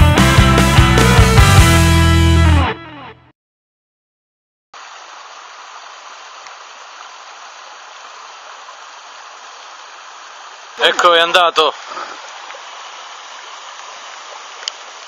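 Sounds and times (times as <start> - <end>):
river water rushing: 4.8 - 15.0.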